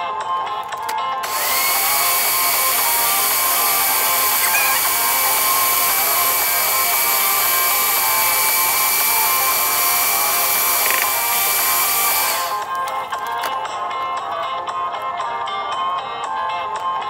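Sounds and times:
stand mixer motor whining: 1.2s - 12.9s.

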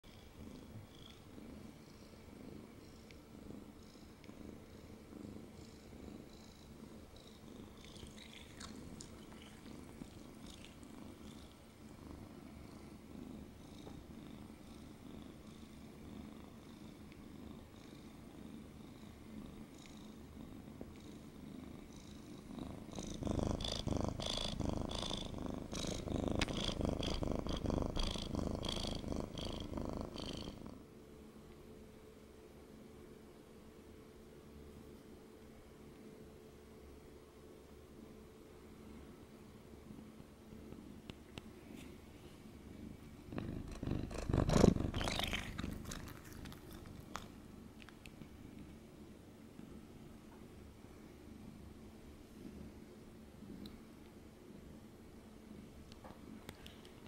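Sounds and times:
cat purring: 0.0s - 30.9s, 42.6s - 48.7s.

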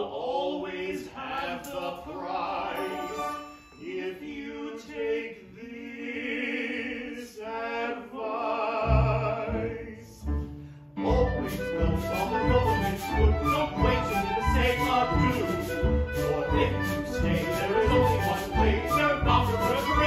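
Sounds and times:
men singing operetta: 0.0s - 10.2s, 11.0s - 20.0s
live instrumental accompaniment: 2.8s - 3.8s, 10.6s - 20.0s.

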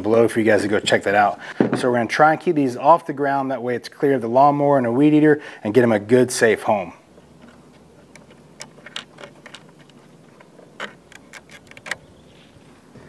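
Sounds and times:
clicks and taps of wiring work: 7.4s - 12.1s.

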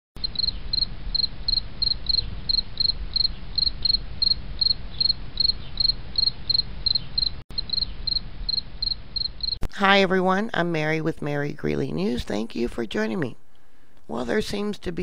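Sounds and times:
cricket chirping: 0.2s - 9.6s
steady low rumble: 0.3s - 10.7s.

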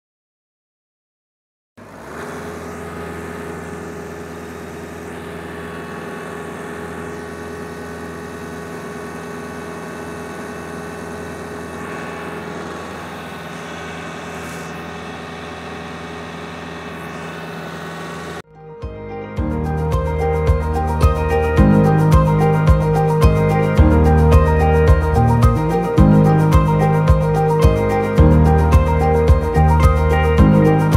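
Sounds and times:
diesel tractor engine running: 1.8s - 18.5s, 19.4s - 30.9s.

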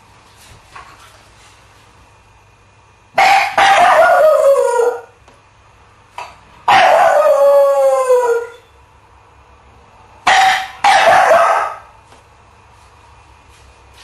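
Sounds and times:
dog howling: 3.2s - 5.2s, 6.7s - 8.6s.

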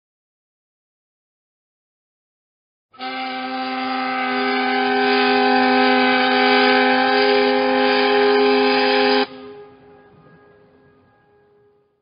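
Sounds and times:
ship's steam whistle blast: 3.0s - 12.0s.

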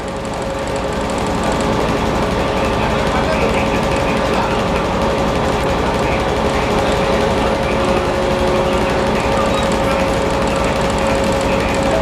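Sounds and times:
locomotive machinery hum and whine: 0.0s - 12.0s
lower machinery whine: 0.0s - 12.0s.

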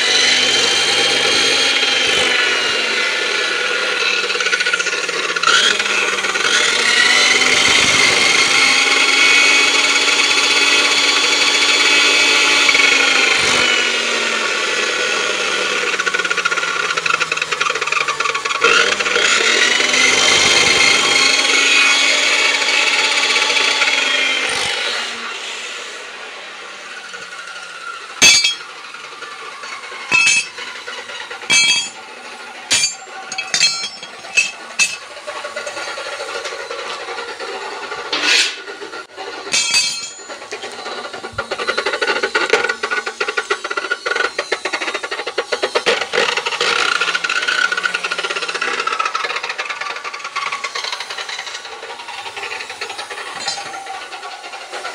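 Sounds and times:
power tool whine: 0.0s - 54.8s.

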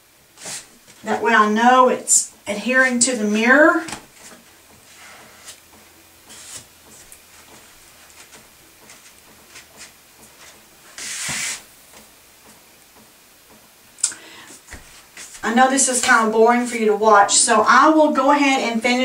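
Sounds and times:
hands rubbing wooden trim: 6.3s - 12.1s, 14.6s - 15.4s
short hiss: 11.0s - 11.7s.

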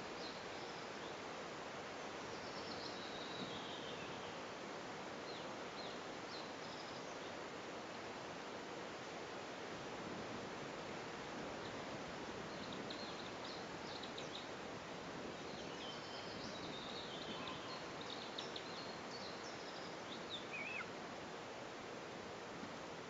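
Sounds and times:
outdoor noise hiss: 0.0s - 23.0s
birds chirping: 15.4s - 20.9s
wavering bird call: 20.4s - 20.9s.

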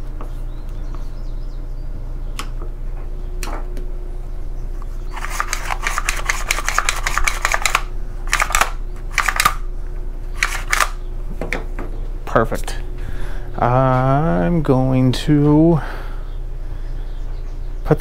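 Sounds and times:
rapid rattling clicks: 5.2s - 9.6s.

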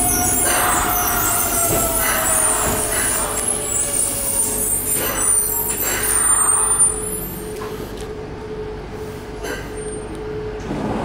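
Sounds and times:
train brake squeal and hiss: 0.0s - 8.0s
train humming: 0.0s - 11.0s.

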